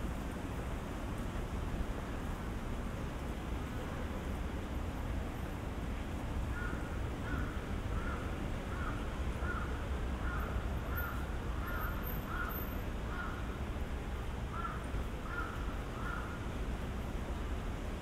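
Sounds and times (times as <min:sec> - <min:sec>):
low hum of street traffic: 0:00.0 - 0:18.0
crow cawing: 0:06.6 - 0:12.5, 0:13.1 - 0:13.4, 0:14.5 - 0:16.4.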